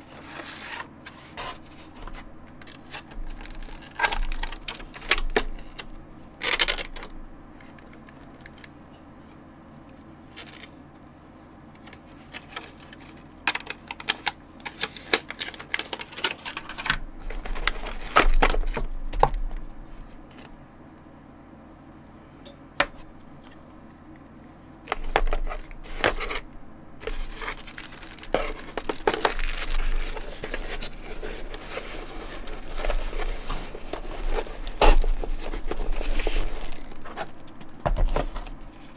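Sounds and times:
cardboard rustling over plastic wrap: 0:00.0 - 0:07.1, 0:12.0 - 0:19.2, 0:24.9 - 0:26.4, 0:27.0 - 0:38.9
low steady hum: 0:00.0 - 0:38.9
plastic bags crinkling: 0:14.7 - 0:18.8, 0:27.0 - 0:38.7
plastic items clicking and knocking: 0:27.0 - 0:38.6.

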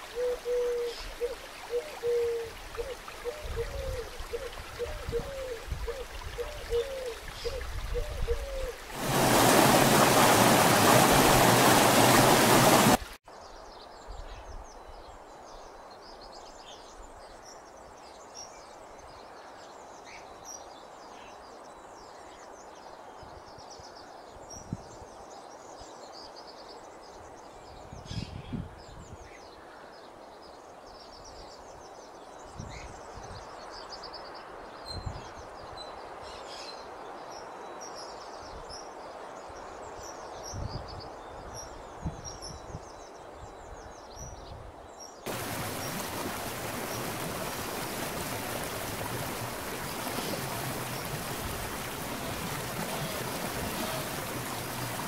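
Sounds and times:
creek rushing over rocks: 0:08.7 - 0:13.2, 0:45.3 - 0:55.0.

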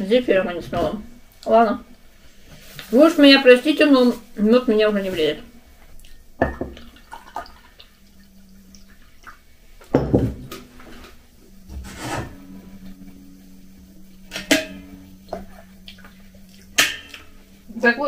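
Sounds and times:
hot water pouring from kettle: 0:06.8 - 0:09.6
crockery clinking: 0:14.3 - 0:15.1.

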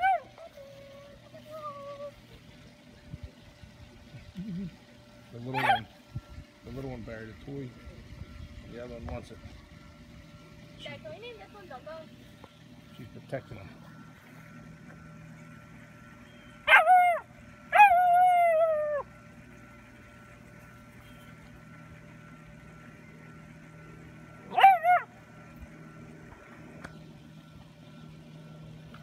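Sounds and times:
puppy howling: 0:00.0 - 0:02.2, 0:05.5 - 0:05.9, 0:16.6 - 0:19.1, 0:24.5 - 0:25.2
puppy yipping: 0:05.5 - 0:05.9, 0:16.7 - 0:19.0, 0:24.5 - 0:25.1.

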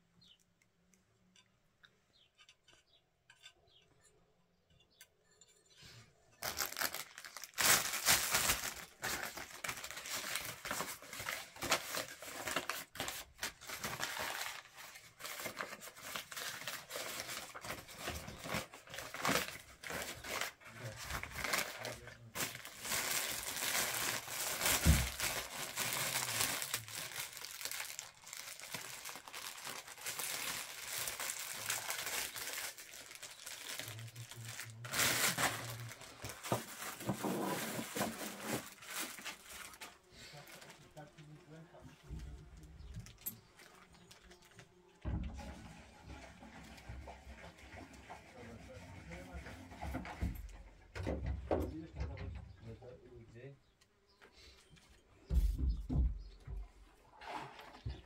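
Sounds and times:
paper and plastic crinkling: 0:06.4 - 0:50.5.

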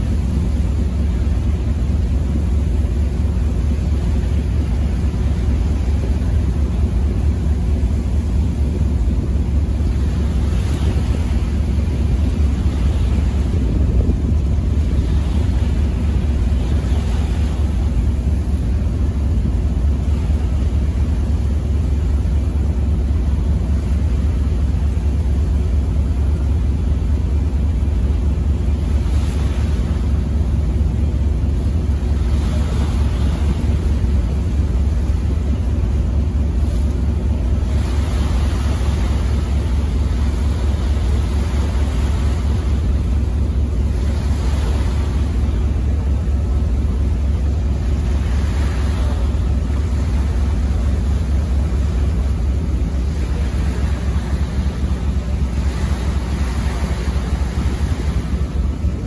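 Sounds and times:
ferry engine rumble: 0:00.0 - 0:59.0
water noise: 0:00.0 - 0:59.0
wind on microphone: 0:08.5 - 0:19.0.

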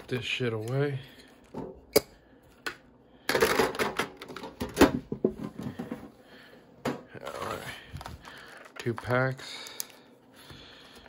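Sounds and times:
plastic packaging crinkling: 0:07.4 - 0:10.0.

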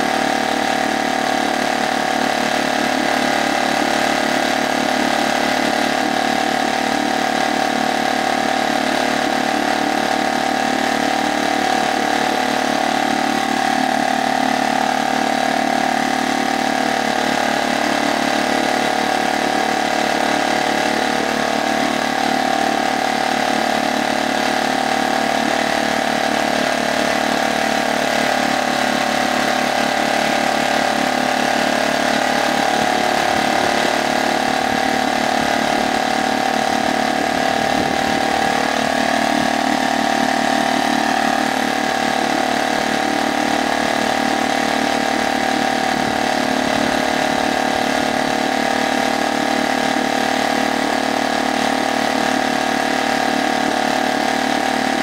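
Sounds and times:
outboard motor running: 0:00.0 - 0:55.0
propeller churning water: 0:00.0 - 0:55.0.

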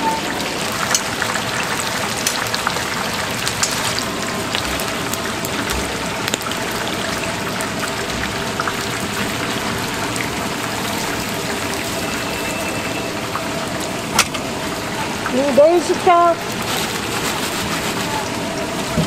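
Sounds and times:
deep-frying oil sizzling: 0:00.0 - 0:19.0.

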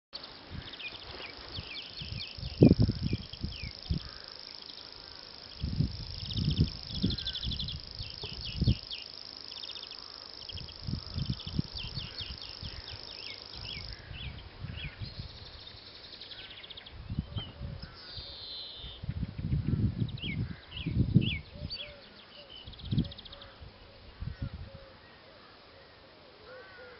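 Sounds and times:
warbler reeling trill: 0:00.2 - 0:14.3
birds chirping: 0:00.2 - 0:19.0.

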